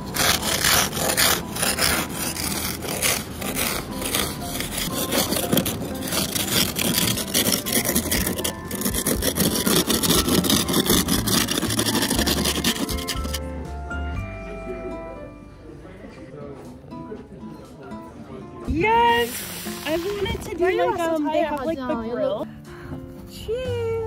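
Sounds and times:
snow scraper scraping windshield: 0:00.0 - 0:13.4.

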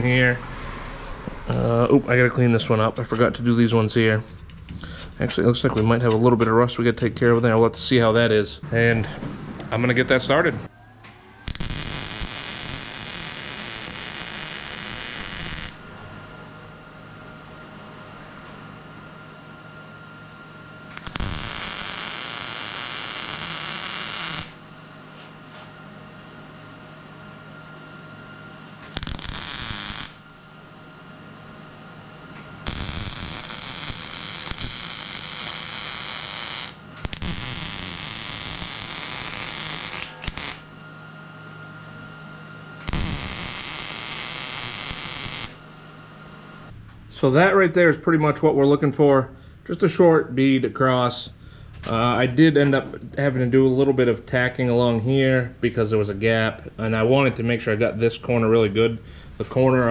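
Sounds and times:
steady hum: 0:00.0 - 0:59.9
welder crackling buzz: 0:11.0 - 0:15.9, 0:20.9 - 0:24.7, 0:28.8 - 0:30.8, 0:31.9 - 0:40.8, 0:42.8 - 0:46.7.

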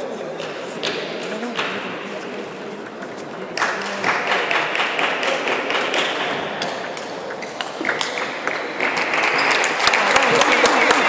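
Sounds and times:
ping pong ball clicking: 0:02.7 - 0:04.2, 0:06.6 - 0:08.6.

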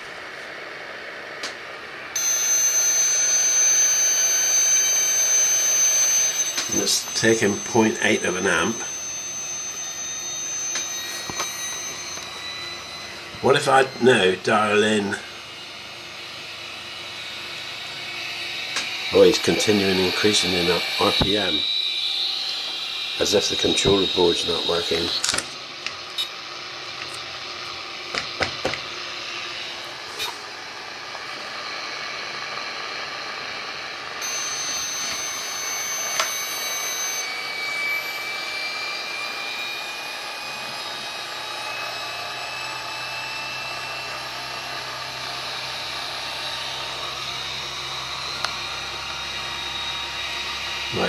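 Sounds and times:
electric motor whine: 0:00.0 - 0:51.0
clicks: 0:36.1 - 0:36.4.

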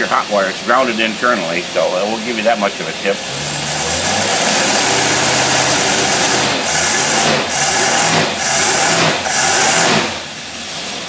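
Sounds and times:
engine revving: 0:03.2 - 0:10.4
intake air rushing: 0:03.2 - 0:11.0.

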